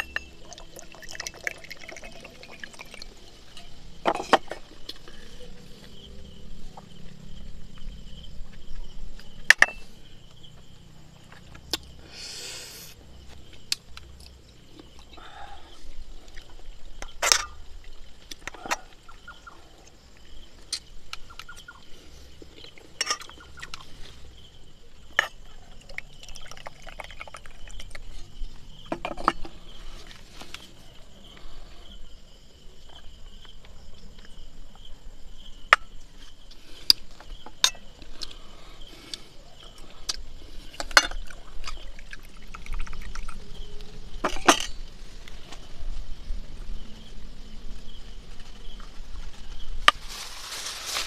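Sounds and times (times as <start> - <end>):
steady high-pitched tone: 0.0 - 3.9.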